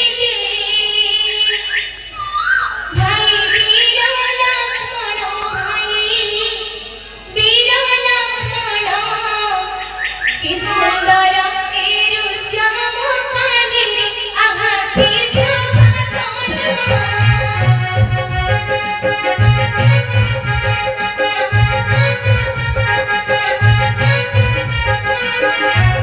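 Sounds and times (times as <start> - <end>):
high voice singing: 14.6 - 26.0
keyboard accompaniment: 14.6 - 26.0
low drum beat: 15.0 - 20.9.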